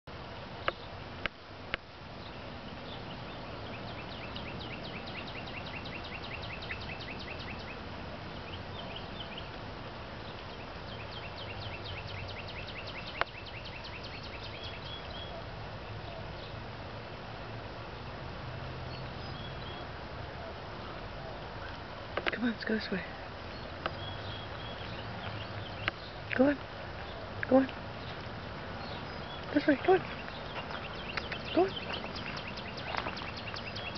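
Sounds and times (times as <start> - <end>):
songbird trilling: 2.2 - 9.6, 10.2 - 16.2, 23.2 - 33.9.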